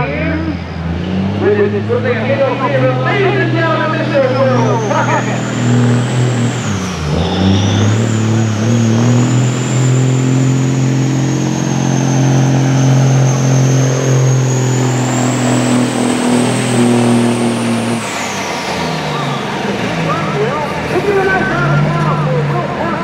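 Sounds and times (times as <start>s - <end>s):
diesel engine under load: 0.0s - 23.0s
high whine: 1.4s - 22.4s.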